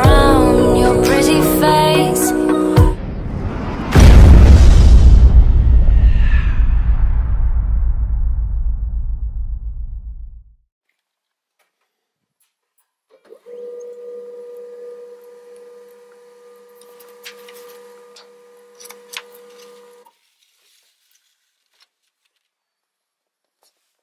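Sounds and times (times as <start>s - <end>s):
printer motor whine: 13.3s - 20.1s.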